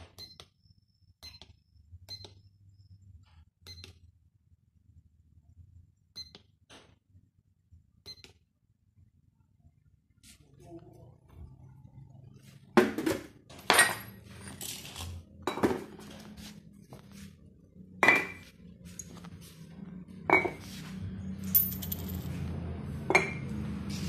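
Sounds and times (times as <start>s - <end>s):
shuffling and handling noise: 15.9s - 17.7s, 18.5s - 20.0s.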